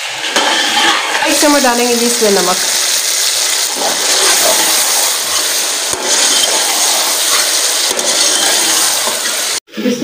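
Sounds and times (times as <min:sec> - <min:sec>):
food sizzling in pot: 0:00.0 - 0:09.6
metal spoon scraping pot: 0:00.3 - 0:01.6, 0:03.2 - 0:09.6.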